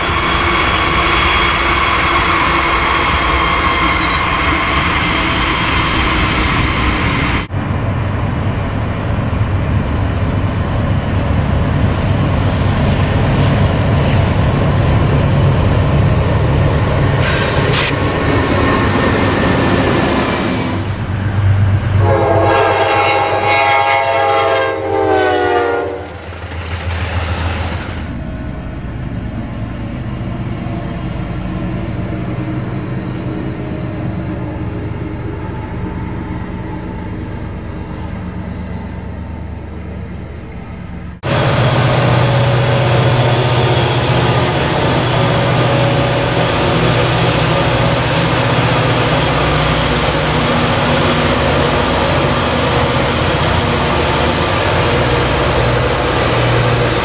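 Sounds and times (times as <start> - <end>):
train locomotives rumbling: 0.0 - 57.0
train horn blast: 22.0 - 26.4.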